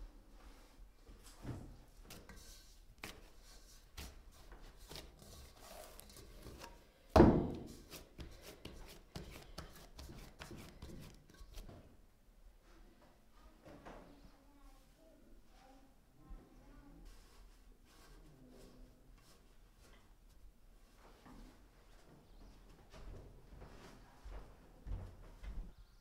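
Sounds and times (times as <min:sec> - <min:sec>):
hands kneading dough: 0:02.0 - 0:06.8, 0:07.5 - 0:12.0.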